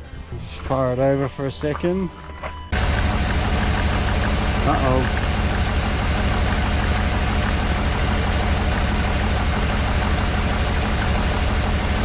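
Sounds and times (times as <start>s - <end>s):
engine idling: 2.7s - 12.0s.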